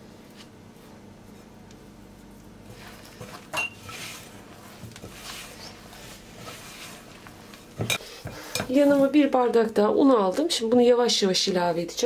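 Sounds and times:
hand mixing dough in bowl: 0:00.2 - 0:12.0
clink against glass bowl: 0:03.6 - 0:03.8.

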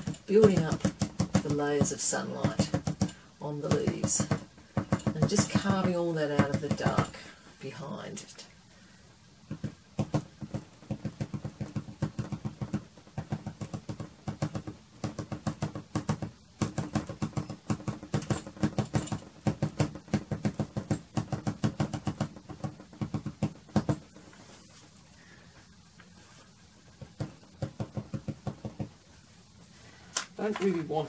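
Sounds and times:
pastel stick tapping on paper: 0:00.0 - 0:07.2, 0:09.5 - 0:24.2, 0:27.0 - 0:29.0.

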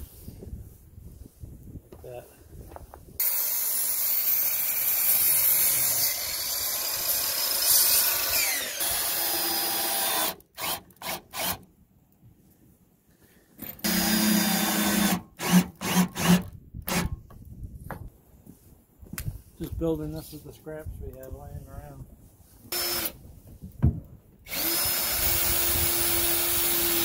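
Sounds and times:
miter saw cutting wood: 0:03.2 - 0:11.6, 0:13.8 - 0:17.1, 0:22.7 - 0:23.2, 0:24.5 - 0:27.0
cordless drill driving screws: 0:06.1 - 0:11.6, 0:13.6 - 0:17.2, 0:22.7 - 0:23.2, 0:24.5 - 0:27.0.

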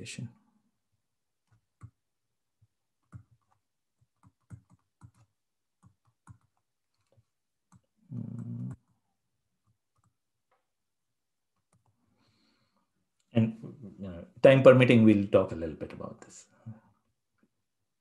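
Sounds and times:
stylus tapping on a tablet: 0:02.6 - 0:07.9.

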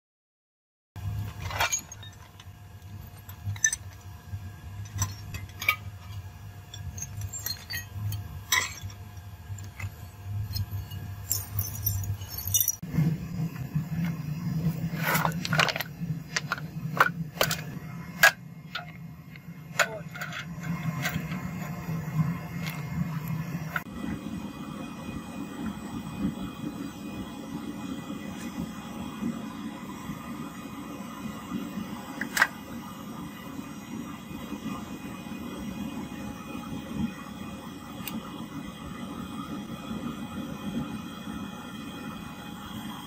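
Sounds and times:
low hum: 0:01.0 - 0:43.0
metal pieces clinking: 0:01.3 - 0:02.4, 0:04.9 - 0:09.0, 0:09.6 - 0:12.8.

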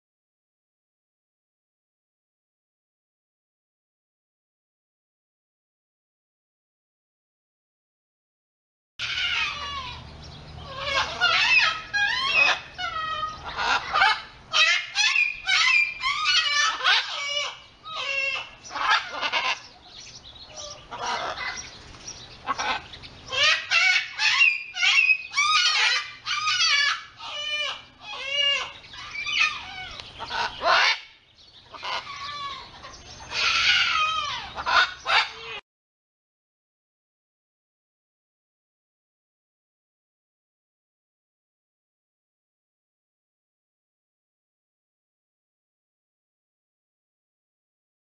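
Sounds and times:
macaw squawking: 0:09.0 - 0:35.6.

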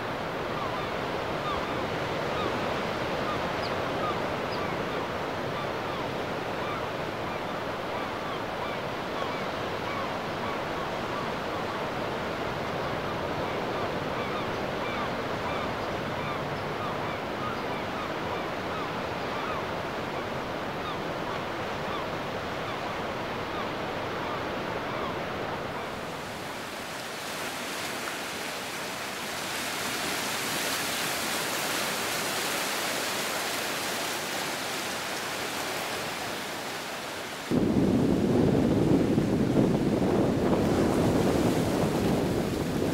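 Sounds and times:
surf washing onto beach: 0:25.8 - 0:42.9.

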